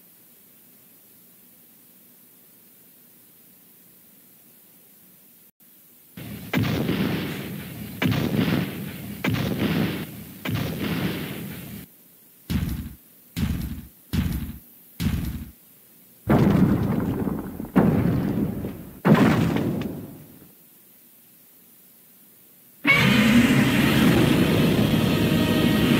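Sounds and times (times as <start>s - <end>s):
cartoon booming thuds: 6.2s - 11.8s, 12.5s - 15.6s, 16.3s - 20.4s.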